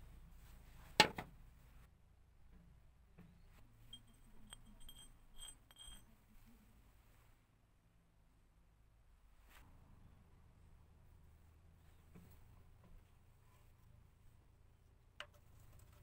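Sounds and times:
metal cutter scraping on oil stone: 4.0s - 6.0s.

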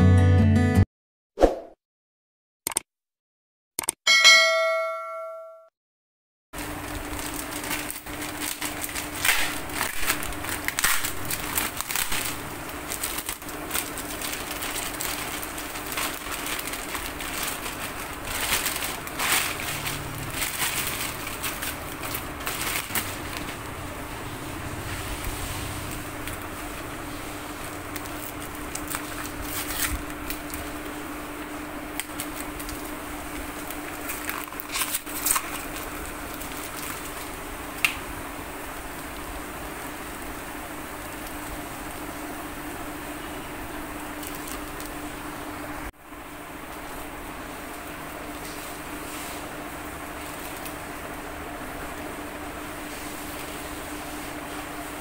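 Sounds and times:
parcel wrapping crinkling and rustling: 6.6s - 23.8s, 25.9s - 38.0s, 44.0s - 45.2s, 47.6s - 52.1s.

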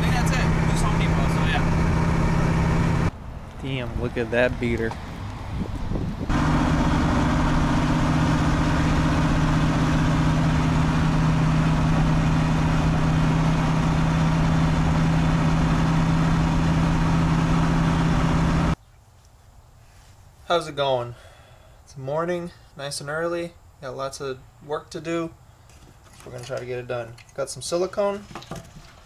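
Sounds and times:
car engine running: 0.0s - 3.1s, 6.2s - 18.8s.

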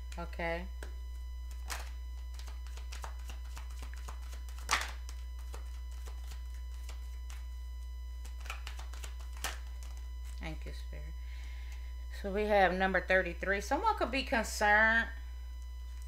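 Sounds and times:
low electrical hum: 0.0s - 16.0s
cards rustling and flicking: 1.5s - 7.5s, 8.2s - 10.4s.

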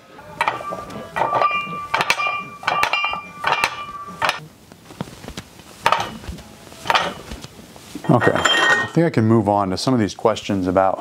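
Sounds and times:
weight plates clinking: 0.3s - 4.4s, 8.0s - 9.0s.

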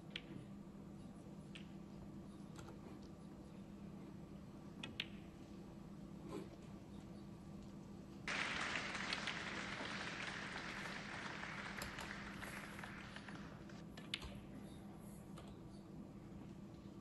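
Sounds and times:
audience applause: 8.3s - 13.8s.

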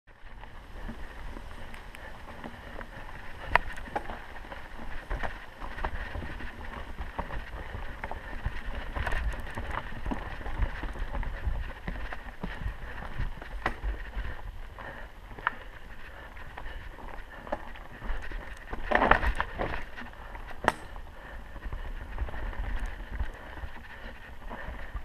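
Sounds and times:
bike tyres rumbling over dirt: 0.1s - 25.0s
bike clicks and knocks: 0.8s - 8.2s, 12.0s - 14.0s, 17.4s - 21.1s.

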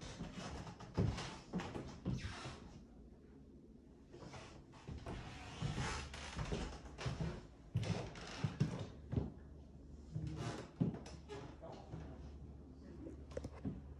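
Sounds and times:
footsteps on hardwood floor: 0.2s - 2.2s, 4.9s - 9.4s.

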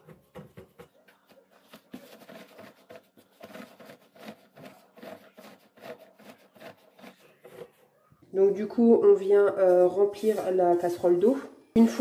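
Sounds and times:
tea towel rustling: 0.0s - 7.9s.

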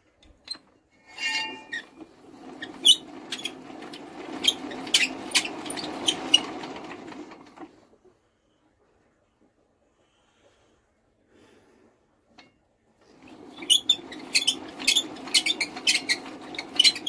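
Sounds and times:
brief squeak: 0.5s - 2.0s
engine turning over by hand: 1.6s - 7.8s, 13.0s - 17.0s.

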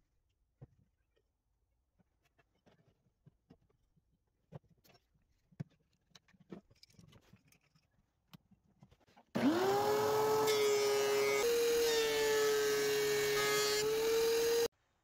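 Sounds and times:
thickness planer motor running: 9.4s - 14.7s.

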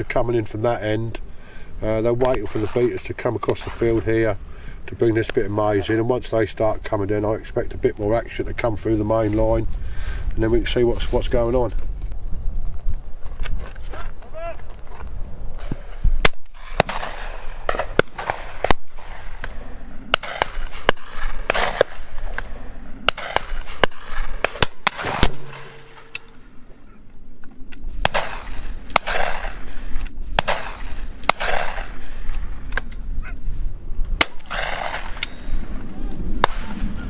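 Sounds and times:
shotguns firing: 2.2s - 4.3s, 16.2s - 26.4s, 28.0s - 32.9s, 34.2s - 35.4s, 36.4s - 37.0s
wind rumble on microphone: 6.7s - 25.3s, 27.6s - 37.0s.

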